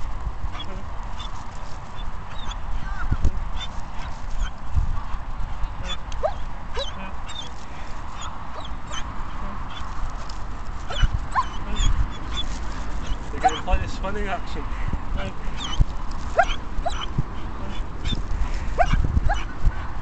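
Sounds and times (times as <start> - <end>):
steady low rumble: 0.0 - 20.0
dogs yipping and whining: 2.0 - 2.6, 3.6 - 4.6, 5.8 - 9.9, 10.8 - 13.8, 15.5 - 18.2, 18.8 - 19.9.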